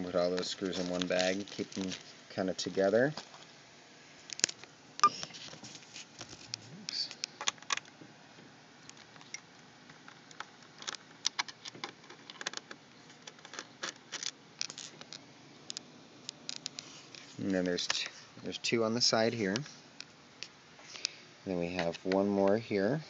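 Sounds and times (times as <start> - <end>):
hands handling small parts: 0.3 - 3.5, 10.0 - 18.2.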